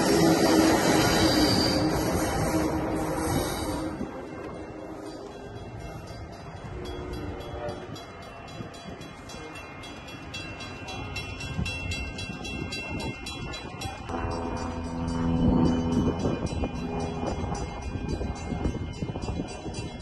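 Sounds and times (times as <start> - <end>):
train horn: 0.0 - 5.4, 6.8 - 8.1
train rumbling on tracks: 0.0 - 20.0.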